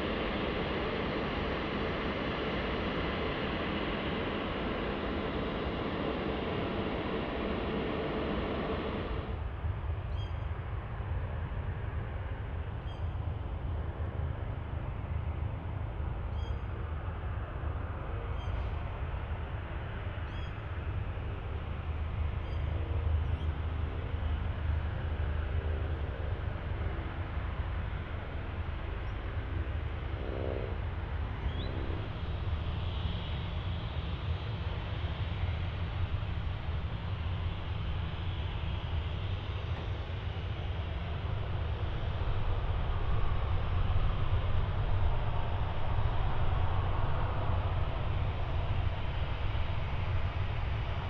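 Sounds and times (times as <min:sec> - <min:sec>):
jet engines rumbling: 0:00.0 - 0:09.5, 0:22.9 - 0:51.0.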